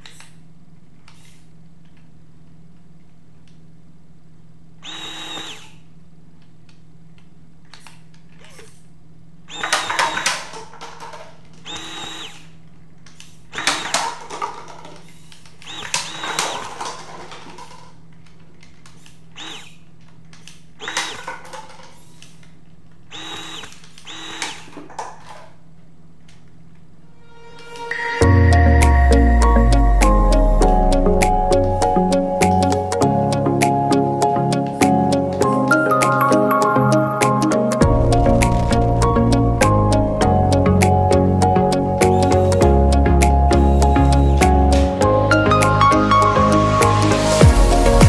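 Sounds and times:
toy motors whirring: 0:01.1 - 0:01.5, 0:04.8 - 0:05.8, 0:09.5 - 0:18.0, 0:18.8 - 0:22.5, 0:23.1 - 0:25.5, 0:42.0 - 0:44.9
plastic cups clattering: 0:13.6 - 0:15.2, 0:16.3 - 0:18.0.

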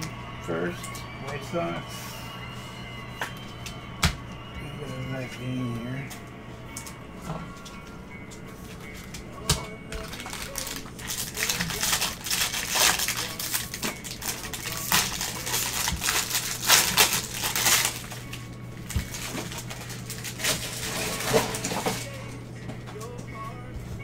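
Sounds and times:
foil wrappers crinkling and tearing: 0:09.9 - 0:22.4.

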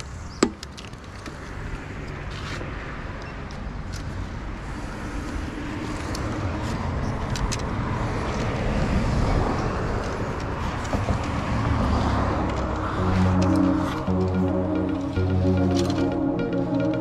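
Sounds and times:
cars passing on highway: 0:00.0 - 0:17.0.

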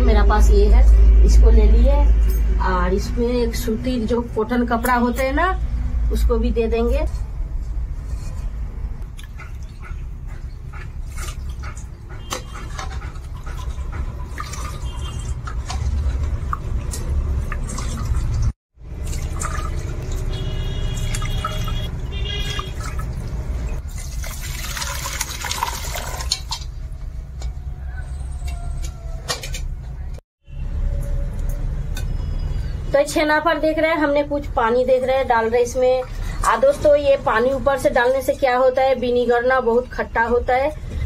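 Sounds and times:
liquid splashing and draining: 0:09.0 - 0:26.8.

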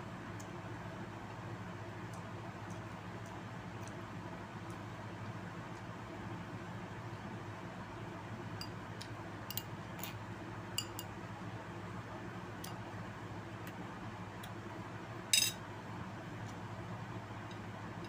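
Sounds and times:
low background hum: 0:00.0 - 0:18.0
cutlery clinking on plate: 0:15.4 - 0:15.6.

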